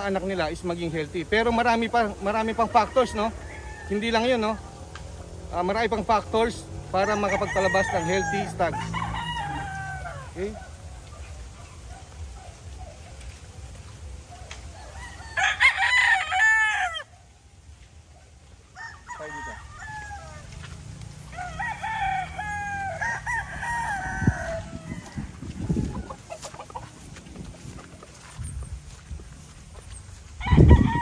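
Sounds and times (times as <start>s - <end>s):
roosters crowing: 0.0s - 31.0s.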